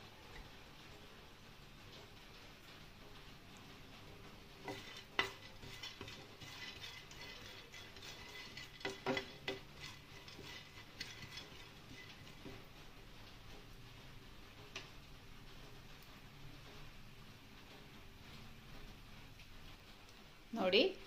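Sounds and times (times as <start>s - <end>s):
spoon stirring seeds in pan: 2.0s - 15.0s
spoon knocking on pan: 4.6s - 12.6s.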